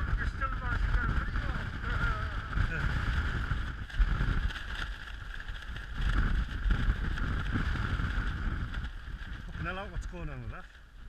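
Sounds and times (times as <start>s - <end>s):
wind buffeting microphone: 0.0s - 11.0s
tent flysheet rustling: 0.1s - 11.0s.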